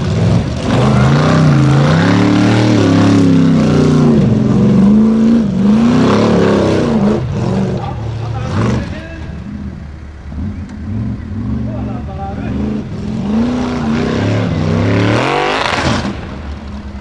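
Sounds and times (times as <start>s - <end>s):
buggy engine revving hard: 0.0s - 16.5s.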